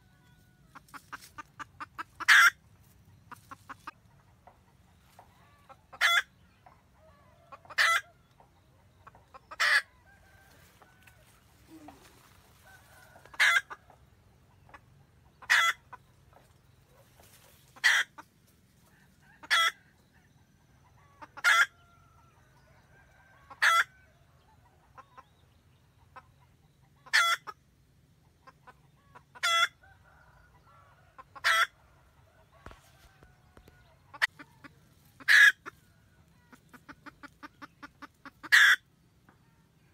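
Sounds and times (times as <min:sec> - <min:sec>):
hen cackling: 0:00.0 - 0:02.6, 0:05.4 - 0:06.3, 0:07.0 - 0:08.2, 0:09.0 - 0:14.0, 0:15.4 - 0:16.0, 0:17.3 - 0:18.3, 0:19.2 - 0:19.8, 0:20.9 - 0:21.8, 0:23.5 - 0:23.9, 0:26.9 - 0:27.6, 0:28.4 - 0:30.0, 0:31.1 - 0:31.8, 0:34.1 - 0:39.4
hen clucking softly: 0:00.0 - 0:39.9.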